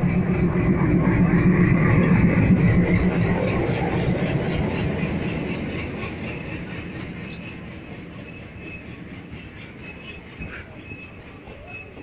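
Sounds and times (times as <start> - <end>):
diesel locomotive rumble: 0.0 - 12.0
train wheels clacking over rail joints: 0.1 - 12.0
faint wheel squeal: 2.9 - 12.0.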